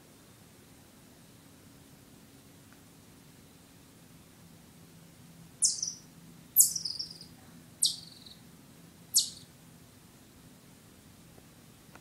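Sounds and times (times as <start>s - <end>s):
chipmunk chip calls: 5.6s - 8.4s, 9.1s - 9.5s.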